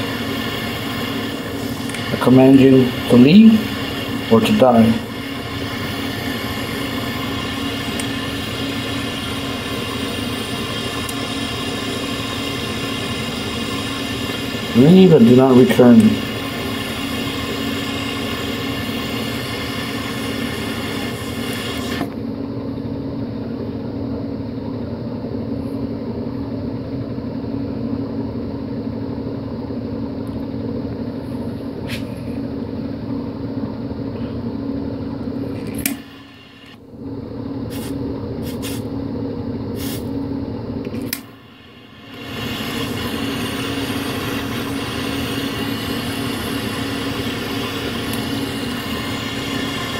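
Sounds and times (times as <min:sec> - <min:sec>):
butane torch hissing: 0:00.0 - 0:22.2, 0:35.4 - 0:36.8, 0:37.7 - 0:38.9, 0:39.7 - 0:40.1, 0:41.0 - 0:49.9.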